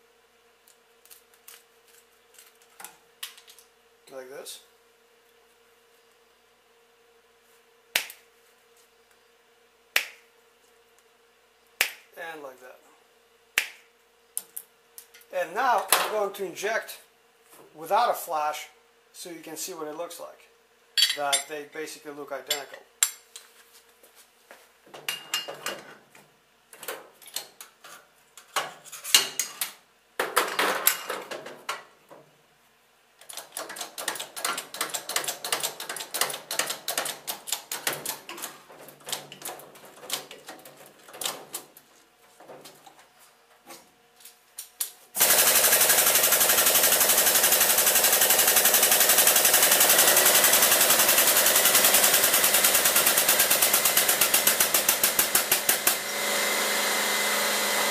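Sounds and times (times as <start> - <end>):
loud pulsing machine noise: 45.2 - 57.9.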